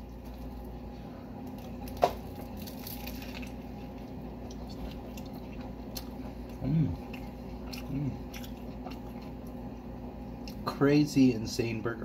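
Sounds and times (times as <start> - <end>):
crunch of biting a burger: 1.4 - 9.5
wet chewing: 1.4 - 10.6.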